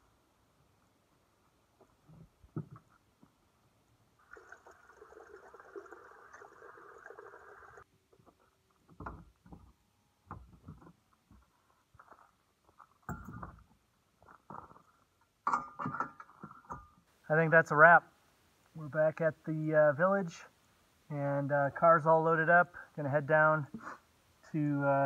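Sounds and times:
water running into plastic bottle: 4.2s - 7.8s.

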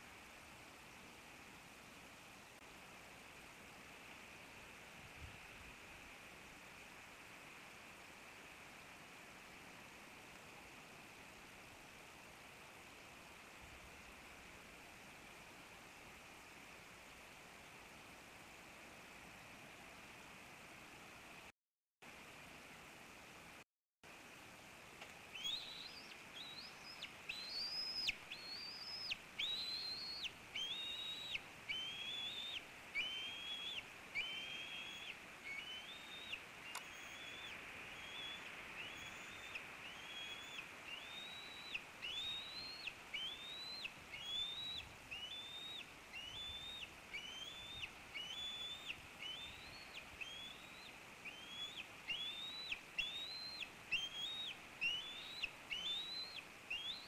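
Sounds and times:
eaglet begging calls: 25.3s - 57.0s.

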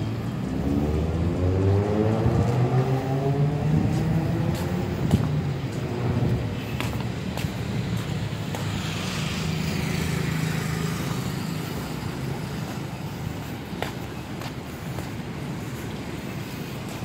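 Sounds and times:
road noise: 0.0s - 17.0s
vehicle engine humming: 0.0s - 17.0s.

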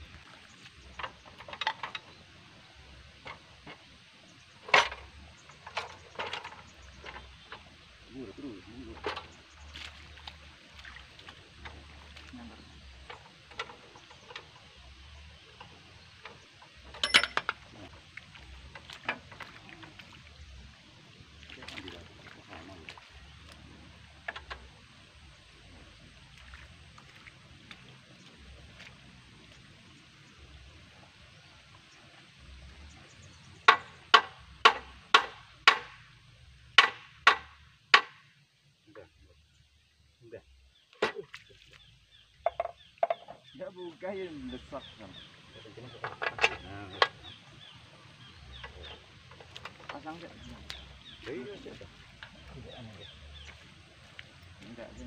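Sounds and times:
metal clanks and knocks: 0.9s - 2.2s, 4.6s - 7.7s, 13.0s - 14.7s, 15.6s - 17.9s, 33.7s - 36.0s, 45.9s - 47.4s.

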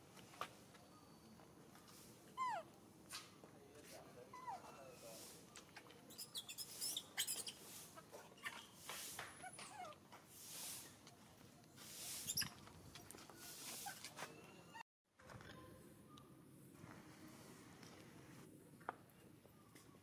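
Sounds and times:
monkeys squeaking and whimpering: 2.4s - 2.7s, 4.3s - 5.0s, 6.1s - 10.0s.

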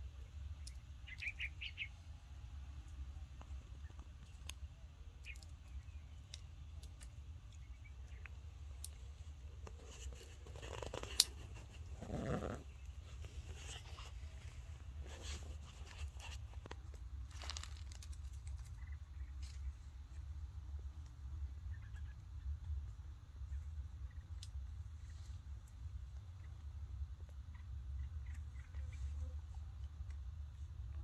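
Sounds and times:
dry leaves rustling: 17.2s - 18.8s.

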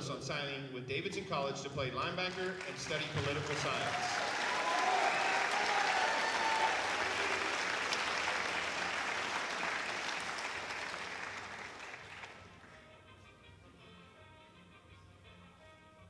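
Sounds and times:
audience applauding: 2.3s - 12.8s.

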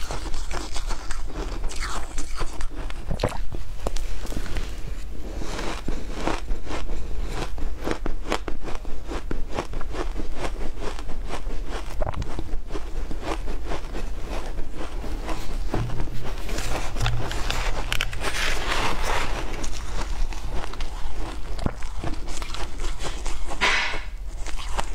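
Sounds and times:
chewing crunchy shaved ice: 0.0s - 24.9s.

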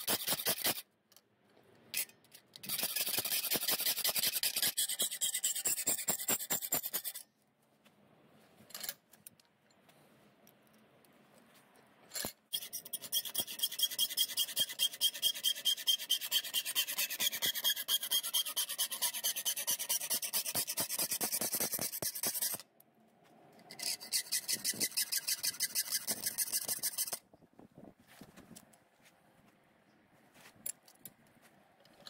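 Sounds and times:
hacksaw cutting metal: 0.0s - 0.8s, 2.0s - 7.2s, 12.5s - 22.6s, 23.7s - 27.2s.

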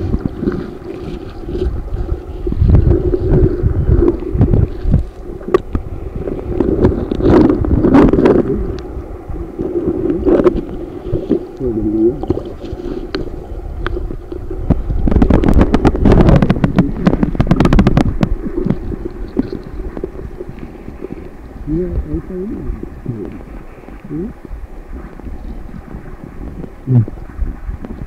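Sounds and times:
underwater river rush: 0.0s - 28.0s
water gurgle: 0.0s - 28.0s.

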